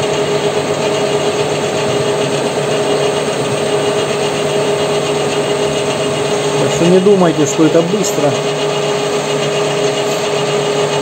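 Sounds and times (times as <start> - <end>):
lathe motor humming and whining: 0.0 - 11.0.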